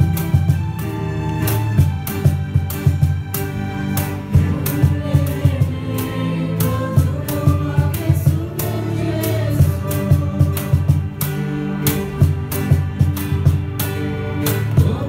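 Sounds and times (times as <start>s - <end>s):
band accompaniment: 0.0s - 15.0s
deep bass notes: 0.0s - 15.0s
steady drum beat: 0.0s - 15.0s
group singing a carol: 4.3s - 12.2s, 14.4s - 15.0s.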